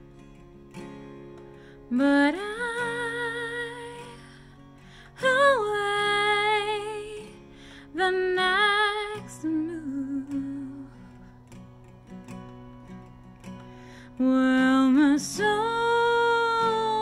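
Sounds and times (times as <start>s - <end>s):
acoustic guitar: 0.0s - 17.0s
woman singing: 1.8s - 11.3s, 14.1s - 17.0s.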